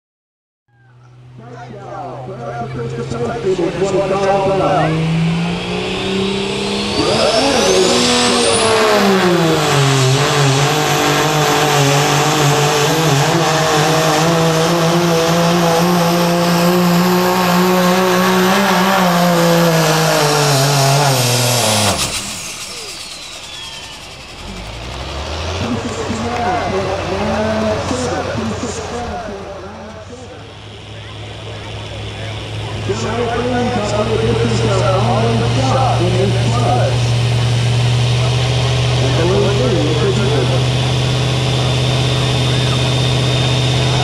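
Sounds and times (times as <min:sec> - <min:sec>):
diesel engine under heavy load: 0:00.7 - 0:44.0
turbo whistle: 0:04.8 - 0:09.2, 0:21.2 - 0:25.0.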